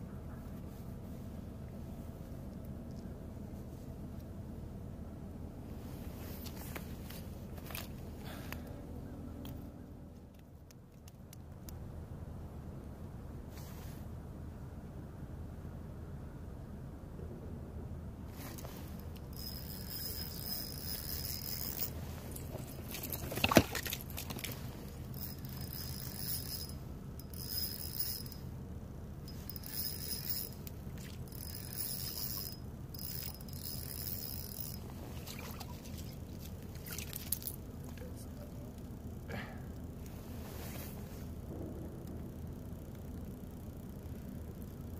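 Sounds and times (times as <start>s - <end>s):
fishing reel whirring: 18.5s - 23.2s, 24.4s - 28.5s, 29.3s - 34.9s.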